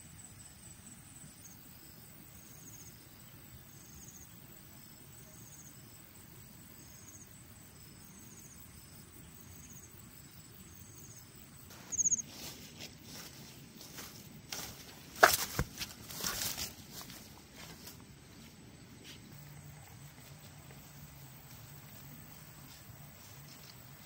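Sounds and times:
insect chirping trills: 0.0 - 24.0
low steady background noise: 0.0 - 24.0.

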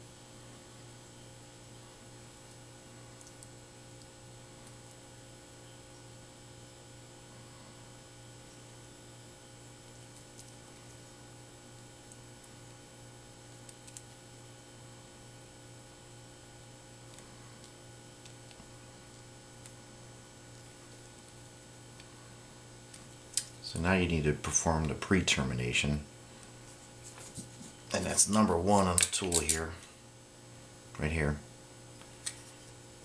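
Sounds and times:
steady electrical hum: 0.0 - 33.0.

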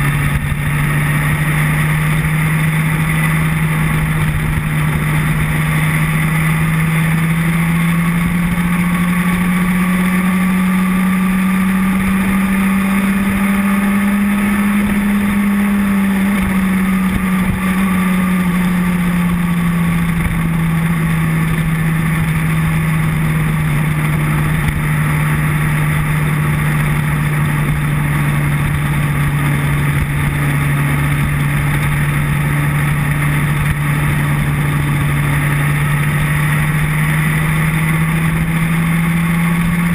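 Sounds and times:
motorcycle engine cruising: 0.0 - 39.9
wind rush over microphone: 11.3 - 37.0.

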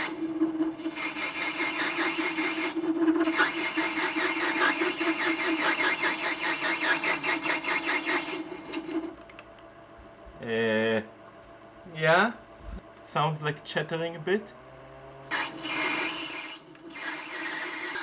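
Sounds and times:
lathe cutting brass with chatter: 0.0 - 5.0, 15.3 - 18.0.

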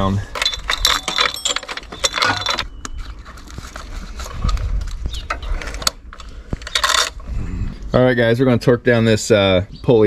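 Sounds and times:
metal chain clinking and rattling: 0.0 - 2.8.

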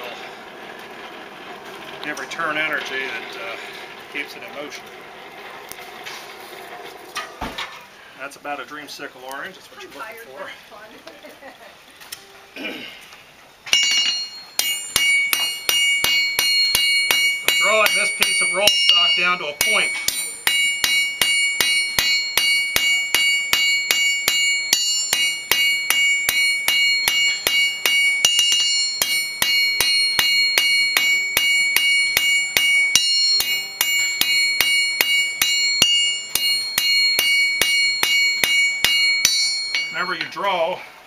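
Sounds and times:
hammer ringing on anvil: 13.7 - 40.4.

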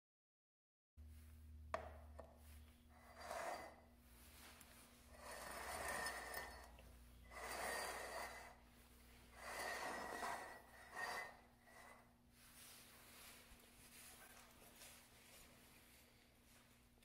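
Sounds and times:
mugs scraping across floor: 2.5 - 15.8.

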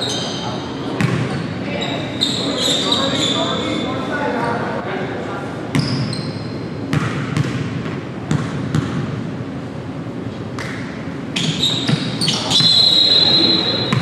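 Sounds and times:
high squeals: 0.0 - 4.0, 11.4 - 14.0.

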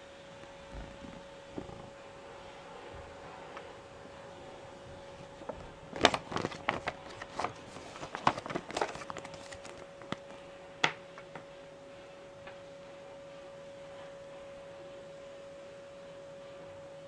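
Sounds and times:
faint steady hum: 0.0 - 17.0
paper crinkling as it is folded: 5.2 - 10.4.

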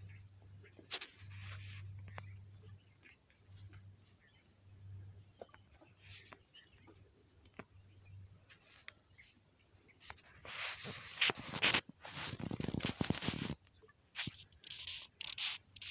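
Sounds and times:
clothing rustling on microphone: 10.0 - 13.6.

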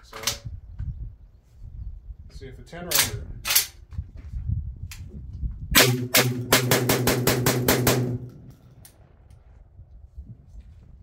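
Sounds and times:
rapid shotgun shots: 5.8 - 8.3.

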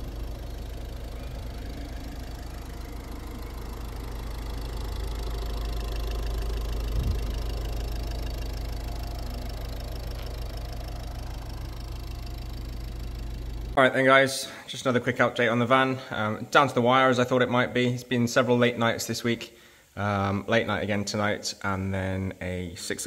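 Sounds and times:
low mechanical hum: 0.0 - 13.8.

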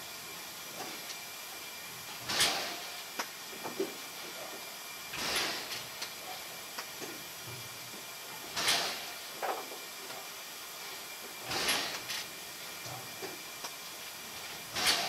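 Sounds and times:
steam locomotive hissing: 0.0 - 15.0
faint steam puff: 2.3 - 3.0, 5.2 - 5.8, 8.5 - 9.2, 11.5 - 12.1.

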